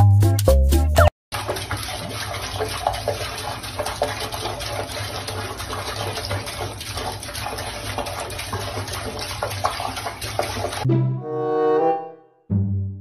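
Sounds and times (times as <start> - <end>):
tap water running into sink: 1.3 - 10.9.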